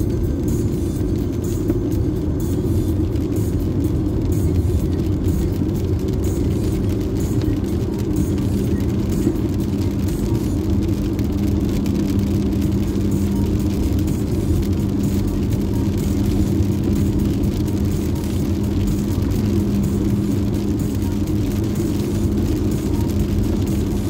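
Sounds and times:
car interior road noise: 0.0s - 24.0s.

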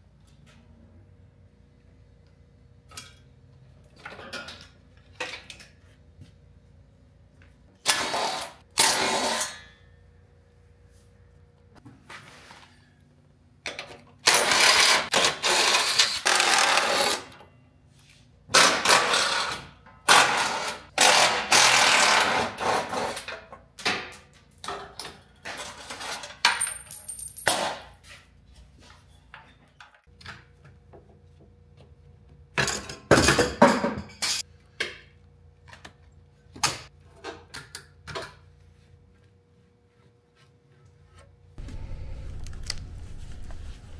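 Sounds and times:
loud tool bursts: 7.8s - 9.7s, 14.2s - 17.3s.

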